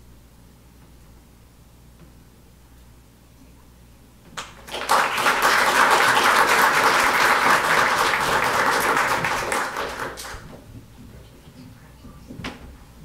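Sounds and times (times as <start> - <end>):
audience applauding: 4.4 - 10.5.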